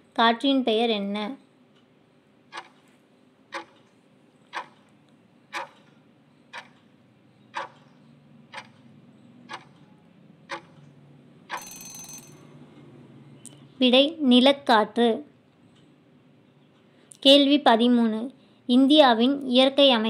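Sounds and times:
timer ticking: 2.5s - 2.9s, 3.5s - 13.6s
short ringing buzz: 11.5s - 12.7s.

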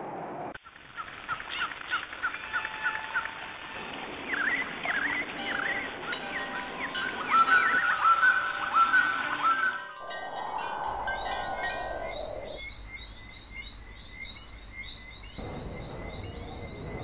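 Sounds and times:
bird chirping: 4.3s - 17.0s.

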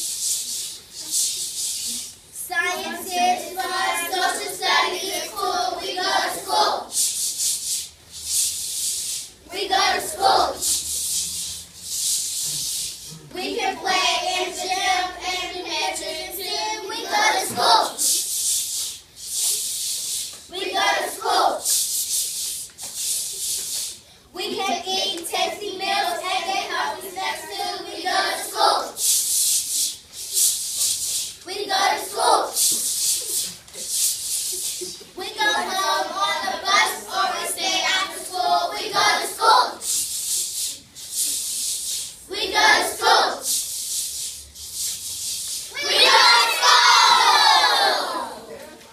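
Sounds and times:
hissing ch ch sounds: 0.0s - 47.9s
children singing: 2.5s - 6.9s, 9.5s - 10.9s, 13.2s - 18.2s, 20.5s - 21.6s, 24.4s - 29.0s, 31.5s - 33.4s, 34.8s - 39.8s, 42.3s - 43.5s, 45.7s - 48.6s.

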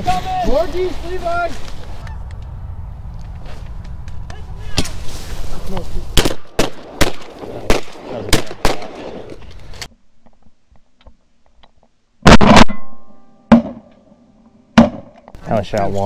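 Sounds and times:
shotgun shots with echo: 6.2s - 9.2s, 12.2s - 12.9s.

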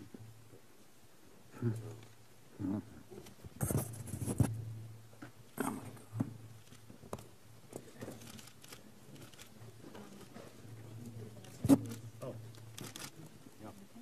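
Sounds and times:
rustling and shuffling: 3.0s - 14.0s.

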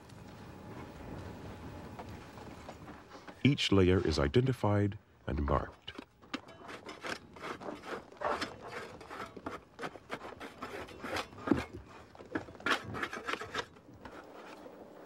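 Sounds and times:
scraping and crumbling sediment: 5.4s - 15.0s.

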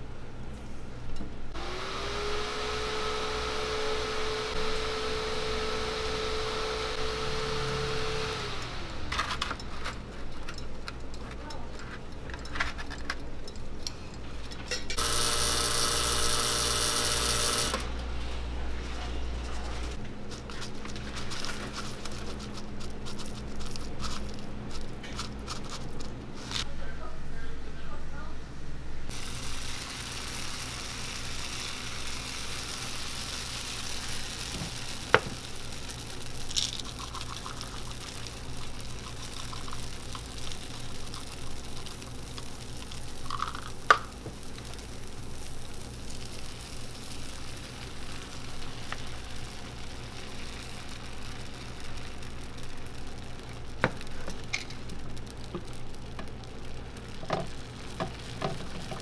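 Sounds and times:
batter sizzling in waffle iron: 15.0s - 17.9s, 29.1s - 59.0s.

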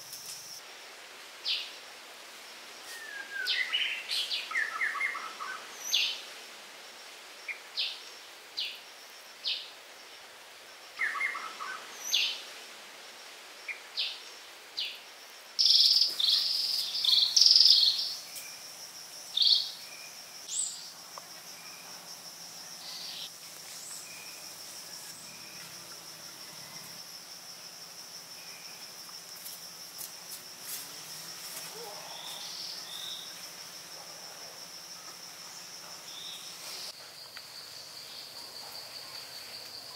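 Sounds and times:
bird chirps: 15.6s - 18.6s
high-pitched insect drone: 15.6s - 39.9s.

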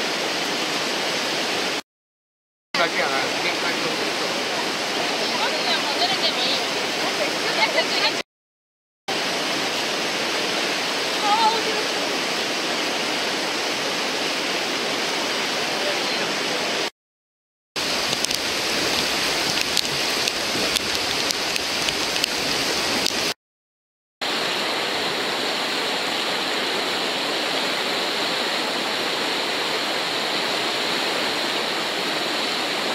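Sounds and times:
whitewater river rushing: 2.8s - 8.2s, 9.1s - 16.9s, 17.8s - 23.4s, 24.2s - 32.9s
kayak splashes: 17.8s - 23.4s.

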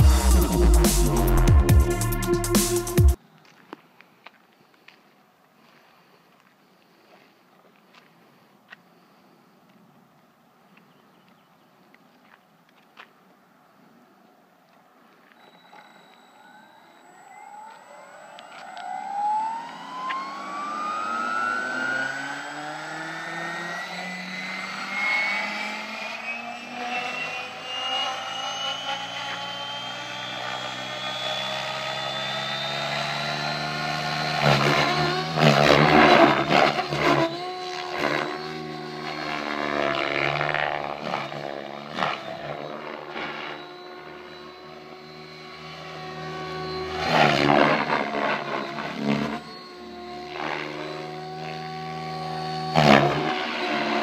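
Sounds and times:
rc helicopter rotor whine: 0.0s - 3.2s, 15.2s - 54.0s.

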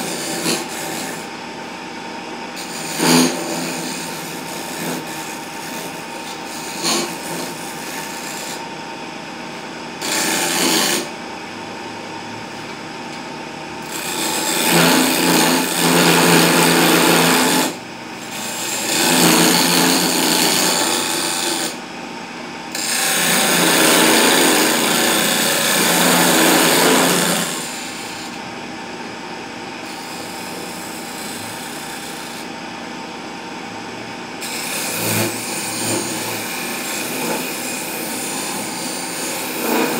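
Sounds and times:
chisel scraping spinning wood: 0.0s - 1.4s, 2.6s - 8.6s, 10.0s - 11.2s, 13.8s - 21.8s, 22.7s - 28.4s, 29.8s - 32.5s, 34.4s - 39.9s
lathe motor humming: 9.5s - 11.5s, 13.8s - 21.7s, 22.7s - 28.5s.

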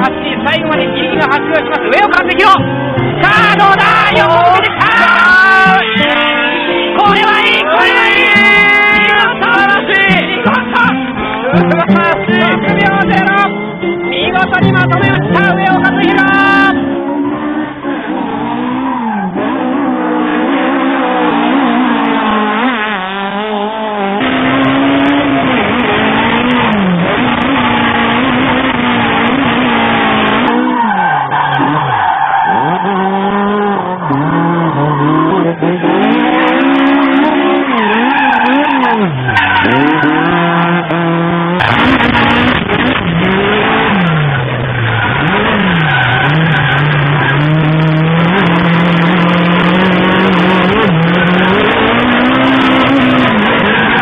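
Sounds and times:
car engine revving: 0.0s - 54.0s
tyres squealing: 29.4s - 54.0s.

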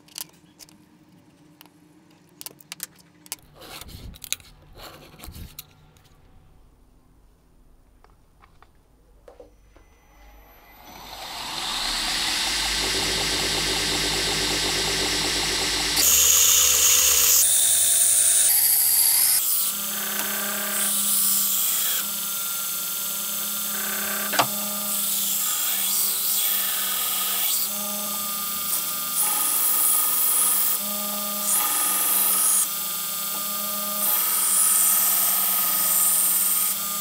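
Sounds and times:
belt grinder grinding steel: 10.3s - 37.0s.

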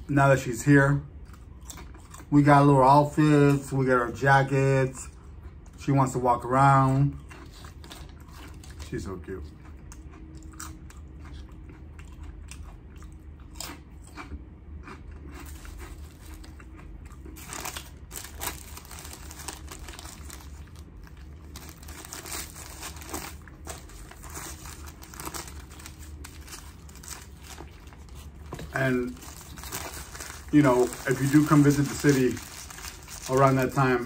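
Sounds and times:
chewing crunchy chips: 1.1s - 3.7s, 6.8s - 34.0s
paper crinkling and rustling: 17.4s - 34.0s.

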